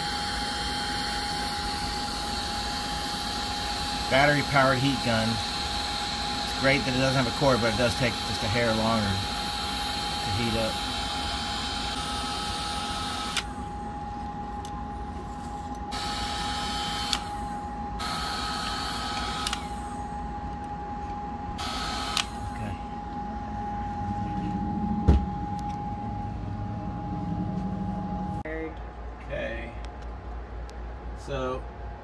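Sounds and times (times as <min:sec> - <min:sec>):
heat gun hissing and whining: 0:00.0 - 0:14.0, 0:15.9 - 0:20.1, 0:21.6 - 0:22.8
heat gun switch click: 0:19.1 - 0:19.7
thump: 0:25.0 - 0:25.4.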